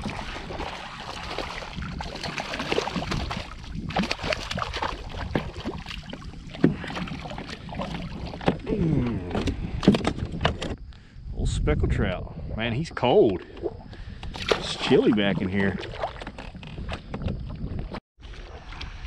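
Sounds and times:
fish splashing in water: 0.0s - 8.6s, 14.3s - 16.5s.

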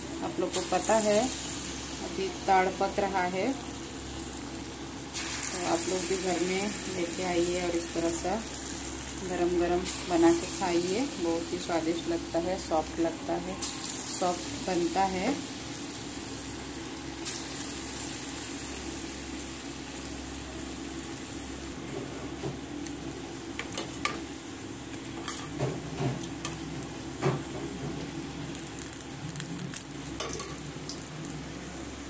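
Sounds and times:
fritters sizzling in hot oil: 0.0s - 32.0s.

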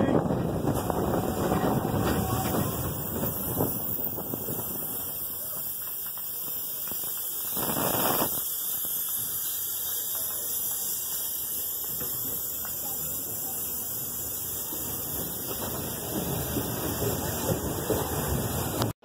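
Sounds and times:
wind on microphone: 0.0s - 5.2s
roller coaster cars rattling: 0.0s - 19.0s.

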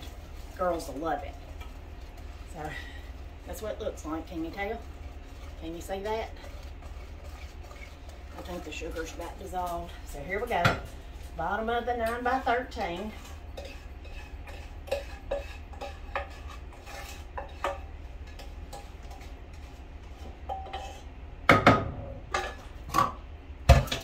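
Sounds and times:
sauce scraped into dish: 4.6s - 8.7s, 12.8s - 21.1s
cookware clattering: 20.4s - 24.0s.

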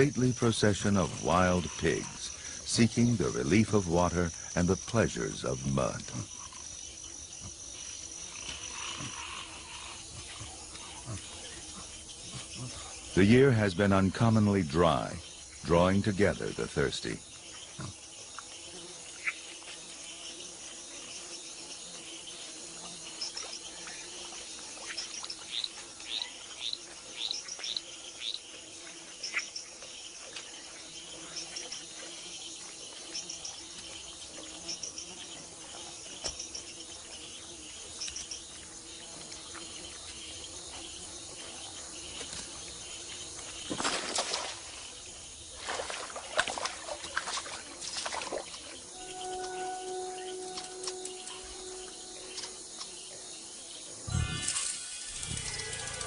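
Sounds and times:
insect chorus: 0.0s - 56.0s
bird calls and trills: 48.3s - 53.1s
loud sudden noises: 54.1s - 56.0s.

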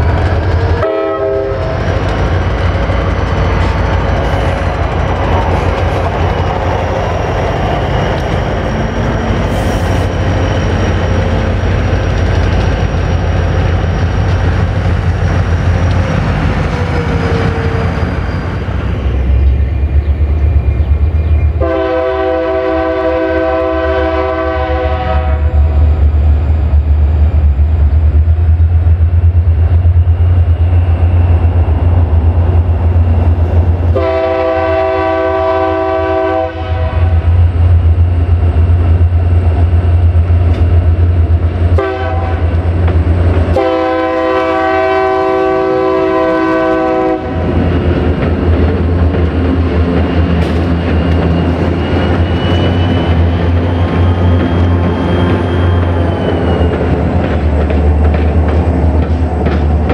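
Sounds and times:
diesel engines droning: 0.0s - 28.5s
locomotive air horn: 0.7s - 1.8s, 21.6s - 25.8s, 33.9s - 37.3s, 41.8s - 42.6s, 43.5s - 47.5s.

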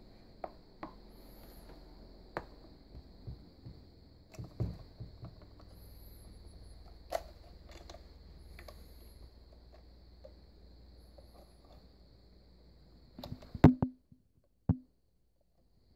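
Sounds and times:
plastic parts clicking and knocking: 2.4s - 5.8s, 6.8s - 8.9s.

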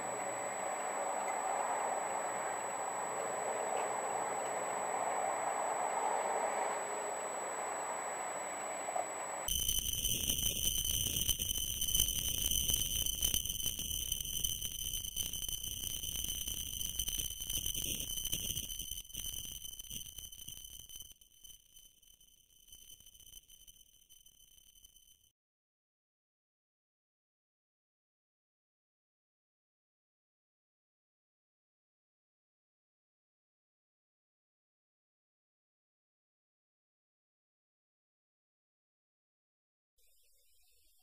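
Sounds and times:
high-pitched engine whine: 0.0s - 20.8s.

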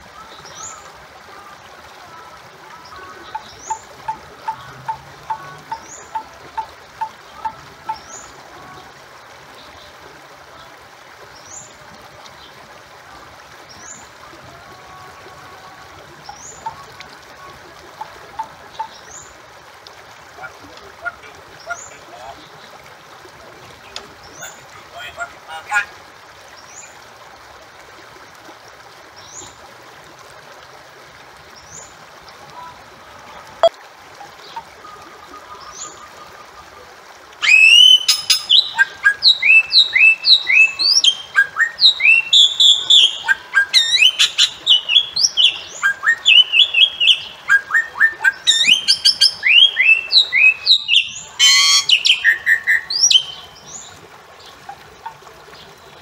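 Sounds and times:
bird whistling calls: 37.4s - 53.5s.

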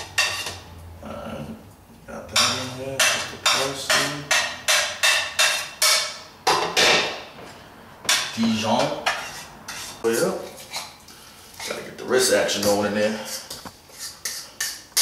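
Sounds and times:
utensil tapping mixing bowl: 2.3s - 6.8s.

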